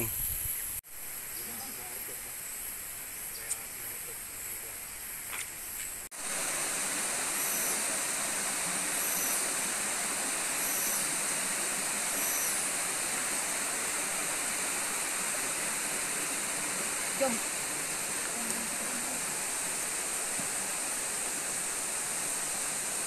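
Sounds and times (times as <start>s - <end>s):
running water rushing: 6.1s - 23.0s.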